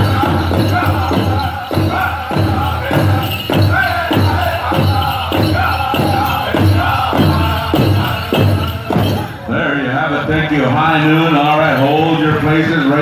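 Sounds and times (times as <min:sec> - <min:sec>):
big drum beats: 0:00.0 - 0:09.5
group singing in unison: 0:00.0 - 0:10.3.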